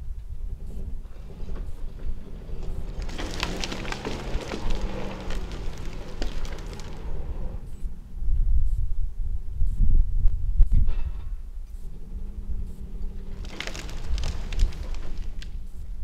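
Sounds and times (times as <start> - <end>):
low steady rumble: 0.0 - 16.0
branches cracking and snapping: 1.5 - 7.6, 12.8 - 15.8.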